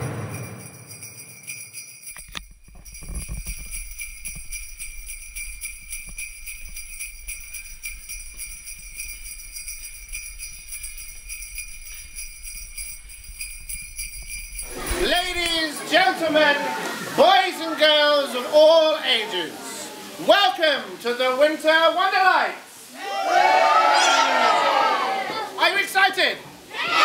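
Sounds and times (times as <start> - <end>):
jingle bells shaken: 0.0 - 16.3.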